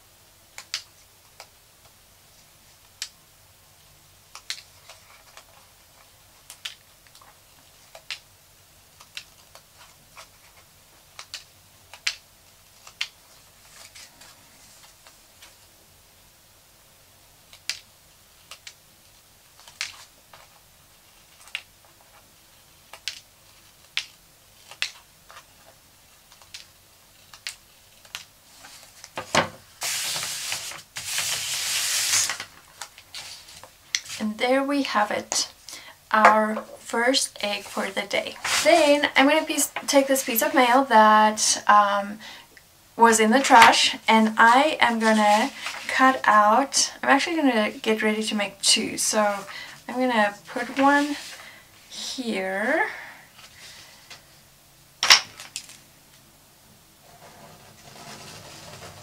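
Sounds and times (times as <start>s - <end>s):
paper rustling: 27.2s - 34.3s, 37.5s - 40.4s, 44.5s - 46.1s, 50.5s - 51.6s, 57.1s - 59.0s.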